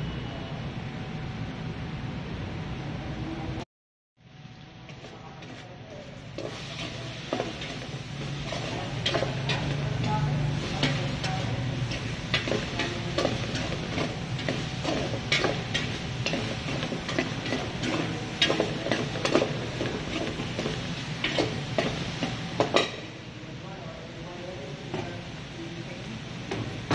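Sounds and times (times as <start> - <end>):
frying sizzle: 6.0 - 23.3.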